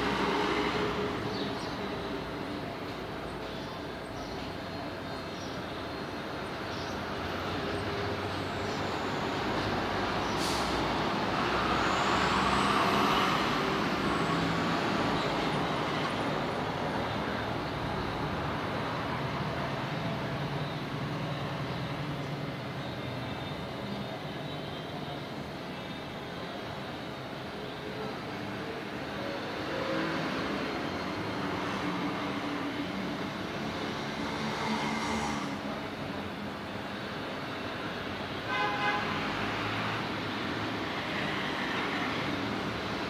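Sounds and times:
street traffic: 0:00.0 - 0:43.0
short hiss: 0:10.3 - 0:10.8.

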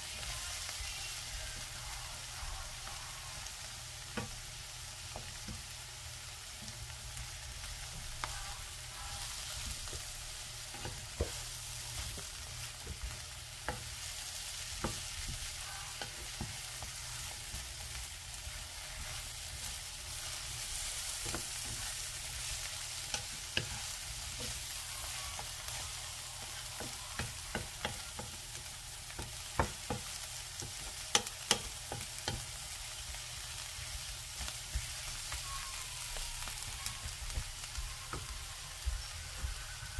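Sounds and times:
vegetables sizzling in frying pan: 0:00.0 - 0:39.9
wooden spatula knocking on pan: 0:10.7 - 0:13.9, 0:14.8 - 0:16.6, 0:26.5 - 0:28.4, 0:29.1 - 0:32.5.

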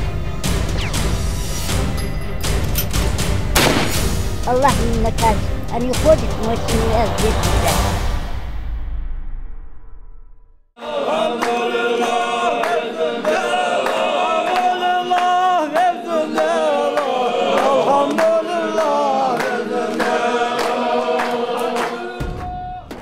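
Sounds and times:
group of voices singing: 0:06.0 - 0:08.2, 0:10.8 - 0:23.0
sharp claps: 0:12.6 - 0:23.0.

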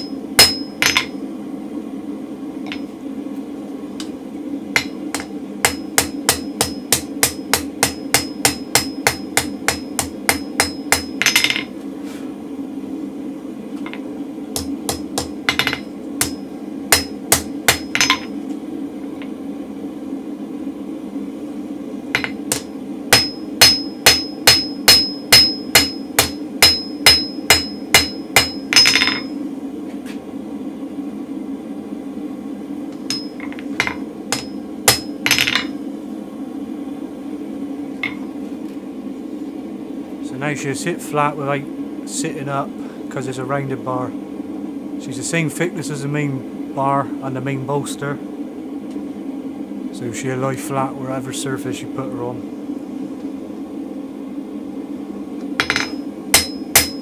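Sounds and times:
hammer striking steel on anvil: 0:00.0 - 0:01.1, 0:04.8 - 0:11.7, 0:14.6 - 0:18.3, 0:22.2 - 0:29.3, 0:33.1 - 0:35.7, 0:55.6 - 0:57.0.

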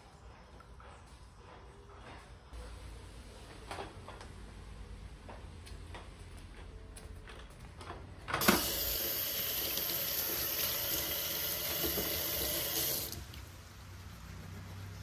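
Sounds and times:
tap water running into steel sink: 0:08.4 - 0:13.4.

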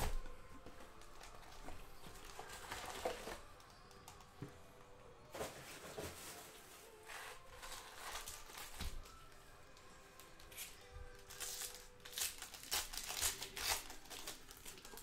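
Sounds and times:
soft background music: 0:00.0 - 0:15.0
foil wrappers crinkling: 0:05.4 - 0:09.2, 0:10.3 - 0:15.0
foil pack tearing open: 0:10.4 - 0:15.0.

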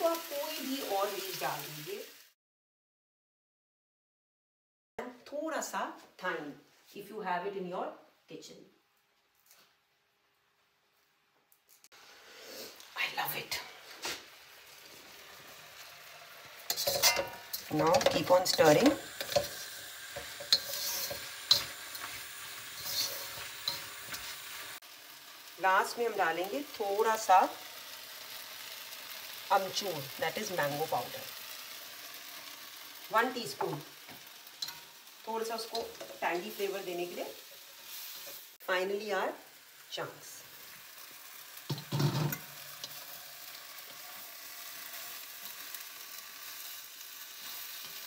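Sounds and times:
vegetables sizzling in a pan: 0:00.0 - 0:02.4, 0:11.7 - 0:48.0
utensil scraping and knocking pan: 0:16.7 - 0:22.2, 0:22.8 - 0:24.4, 0:41.7 - 0:42.4.

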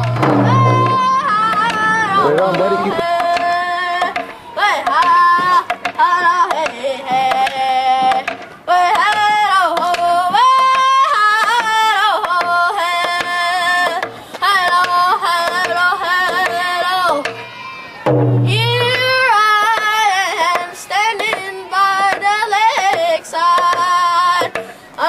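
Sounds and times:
frame drum beating: 0:00.0 - 0:04.3, 0:18.1 - 0:20.0
boy singing in a high voice: 0:00.0 - 0:17.7, 0:18.5 - 0:25.0.

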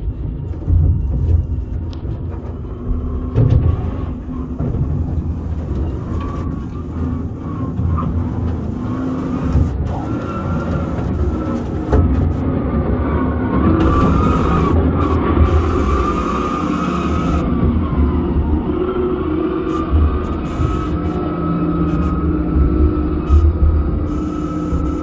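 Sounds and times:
knocks and rattles: 0:00.0 - 0:12.5
mine vehicle rumbling: 0:00.0 - 0:25.0
wavering motor whine: 0:00.0 - 0:25.0.

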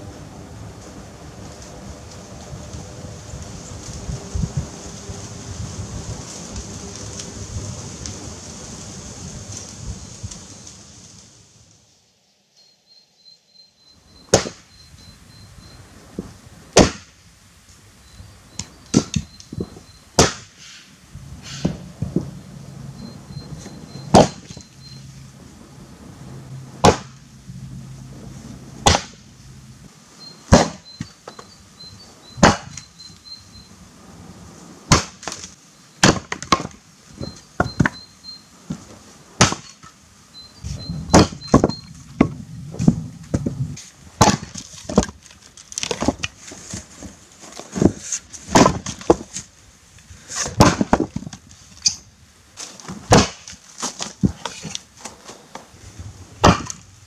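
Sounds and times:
faint bird chirps: 0:12.2 - 0:16.0, 0:18.0 - 0:20.1, 0:22.9 - 0:25.1, 0:30.2 - 0:33.8, 0:40.3 - 0:42.0
axe splitting firewood: 0:16.8 - 0:17.1, 0:18.9 - 0:20.5, 0:24.1 - 0:24.6, 0:26.8 - 0:27.2, 0:28.8 - 0:29.2, 0:30.5 - 0:31.5, 0:32.4 - 0:32.9, 0:34.9 - 0:36.8, 0:39.4 - 0:39.9, 0:41.1 - 0:49.5, 0:50.3 - 0:52.0, 0:52.6 - 0:55.6, 0:56.4 - 0:56.9
split wood pieces knocking: 0:44.2 - 0:46.4, 0:47.6 - 0:49.4, 0:50.5 - 0:51.4, 0:56.4 - 0:56.8.

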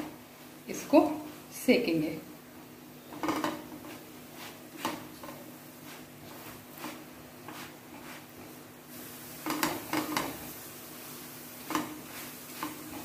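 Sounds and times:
faint frying hiss: 0:00.0 - 0:13.0
spatula tapping and scraping pan: 0:03.1 - 0:08.6, 0:09.4 - 0:10.5, 0:11.6 - 0:13.0.

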